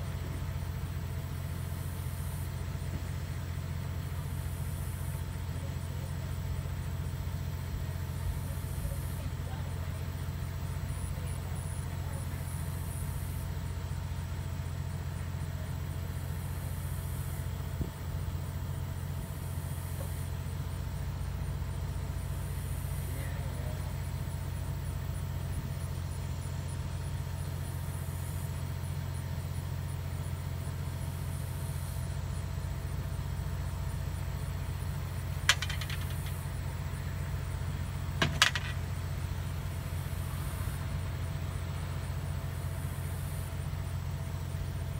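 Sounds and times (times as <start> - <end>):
truck engine idling: 0.0 - 44.9
sharp knocks: 35.5 - 36.4, 38.2 - 38.8.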